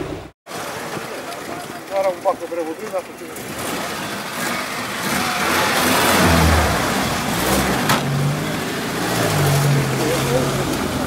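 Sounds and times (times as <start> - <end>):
wheels splashing through water: 0.0 - 11.0
off-road vehicle engine revving: 3.1 - 11.0.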